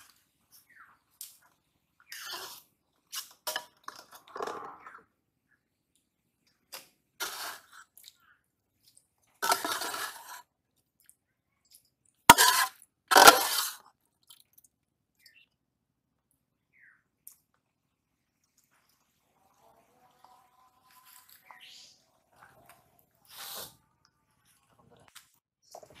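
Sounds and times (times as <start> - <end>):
spoon scraping inside steel pot: 9.4 - 10.4, 12.3 - 13.8.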